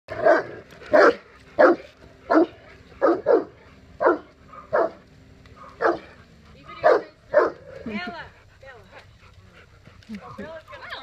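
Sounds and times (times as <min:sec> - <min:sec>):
large dog barking: 0:00.1 - 0:07.9.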